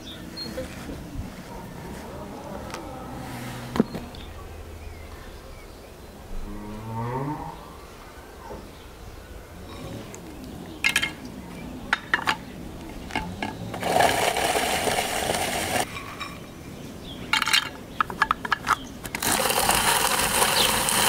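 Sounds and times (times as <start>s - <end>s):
rotary nut grater grinding: 13.2s - 15.9s, 19.1s - 21.0s
clicks and clatters of nuts: 17.3s - 21.0s.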